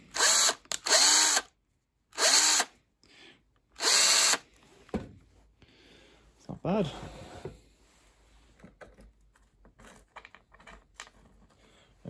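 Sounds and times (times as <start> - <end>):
power drill whirring: 0.0 - 1.5, 2.1 - 2.7, 3.8 - 4.4.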